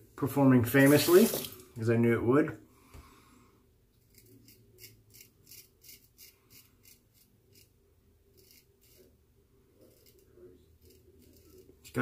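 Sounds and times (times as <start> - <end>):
razor scraping stubble: 4.0 - 9.1, 9.8 - 12.0.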